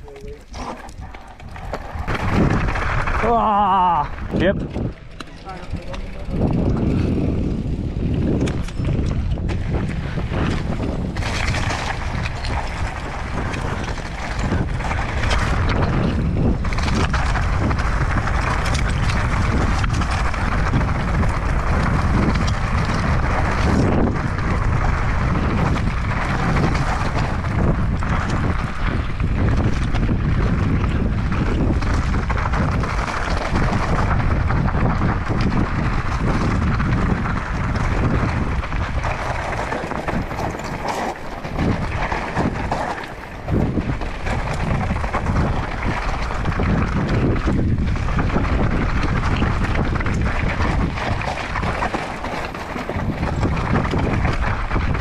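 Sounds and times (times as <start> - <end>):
mountain bike rattling on rocky trail: 0.0 - 55.0
wind buffeting microphone: 0.0 - 55.0.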